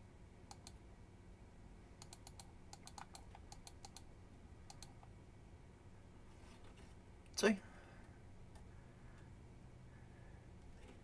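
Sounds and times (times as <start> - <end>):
computer mouse clicking: 0.5 - 0.8, 2.0 - 4.1, 4.7 - 5.1.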